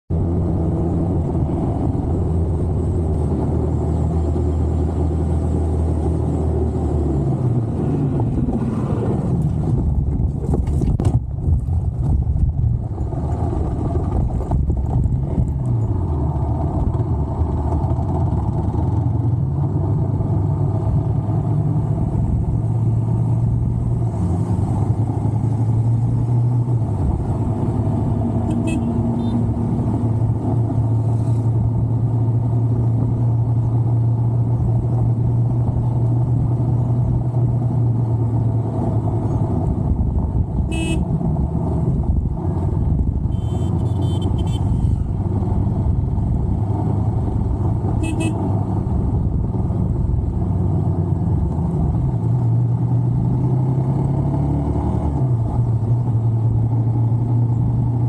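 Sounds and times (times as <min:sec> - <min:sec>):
motorcycle engine revving: 0:20.6 - 0:31.2, 0:40.5 - 0:57.8.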